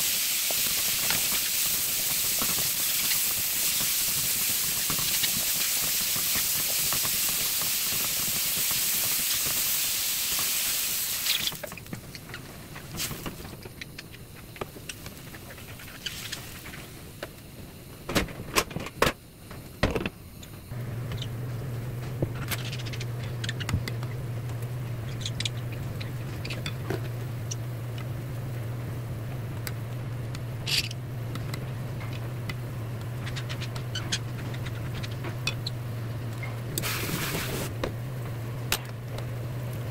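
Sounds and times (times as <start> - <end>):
meat sizzling in a frying pan: 0.0 - 11.8
steady low hum: 11.6 - 39.9.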